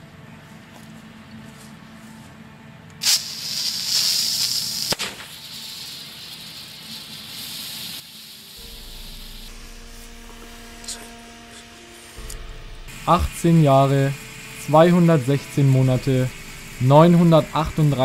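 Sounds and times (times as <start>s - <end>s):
sharp crack: 3.0s - 7.3s
flare hissing: 3.0s - 18.0s
flare igniting burst: 3.0s - 18.0s.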